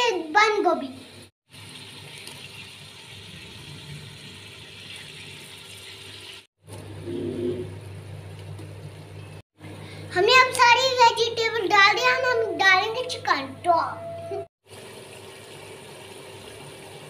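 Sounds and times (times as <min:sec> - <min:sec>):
pot cooking hiss and hum: 0:00.8 - 0:10.2.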